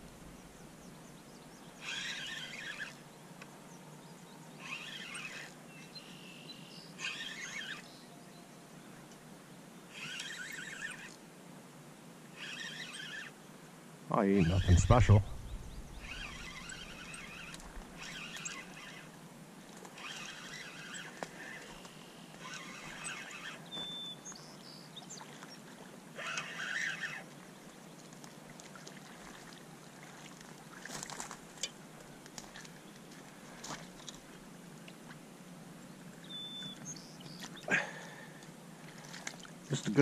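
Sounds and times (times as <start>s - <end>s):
fishing reel cranking: 1.8s - 3.0s, 4.6s - 5.6s, 7.0s - 7.9s, 9.9s - 11.2s, 12.4s - 13.4s, 14.4s - 19.2s, 19.8s - 23.6s, 26.2s - 27.3s.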